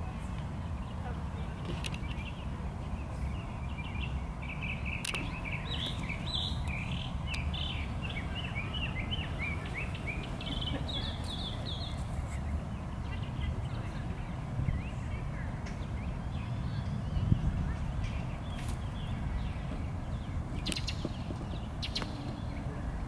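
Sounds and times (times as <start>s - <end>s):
birds chirping: 0.0s - 23.0s
sharp click: 5.0s - 6.0s, 20.6s - 21.2s.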